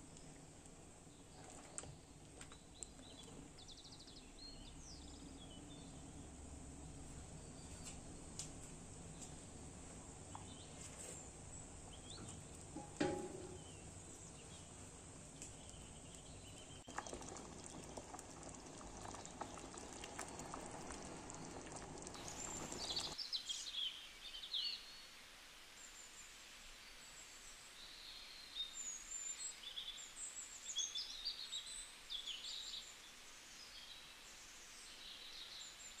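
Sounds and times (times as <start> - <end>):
jam simmering and bubbling: 0.0 - 4.0, 5.2 - 23.2
faint bird chirping: 0.0 - 8.4, 9.0 - 25.2.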